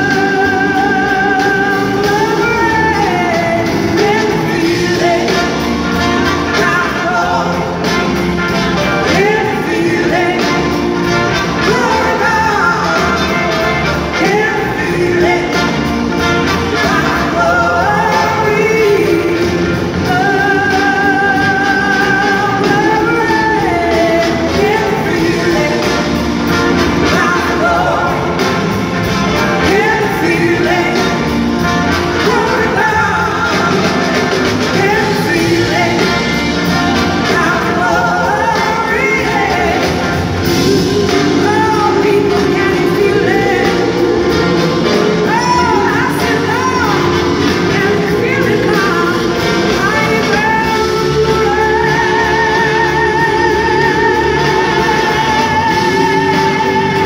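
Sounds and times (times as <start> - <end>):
bass guitar: 0.0 - 57.0
drums: 0.0 - 57.0
electric guitars: 0.0 - 57.0
keyboards: 0.0 - 57.0
person singing: 32.2 - 57.0.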